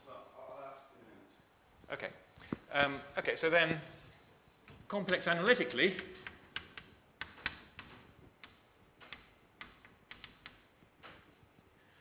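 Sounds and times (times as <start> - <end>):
chalk tapping on a blackboard: 5.8 - 11.3.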